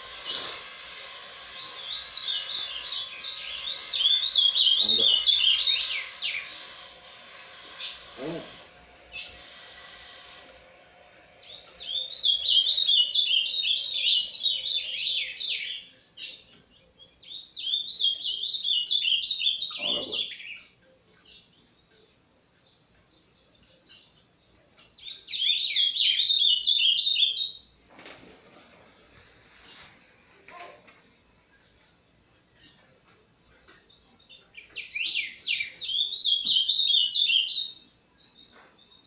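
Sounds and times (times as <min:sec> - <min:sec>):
bird warbling: 0:00.0 - 0:10.4, 0:18.0 - 0:20.6.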